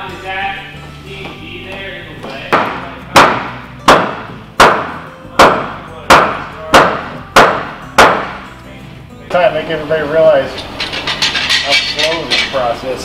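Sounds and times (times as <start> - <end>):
hammer striking wood: 2.5 - 8.5.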